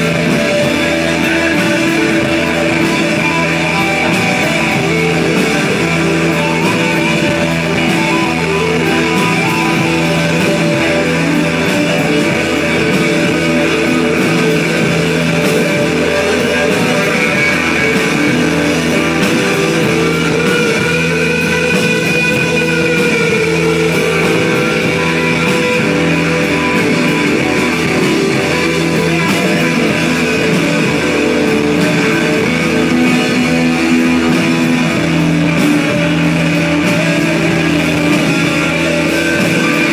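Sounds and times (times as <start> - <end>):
drums: 0.0 - 39.9
electric guitar: 0.0 - 39.9.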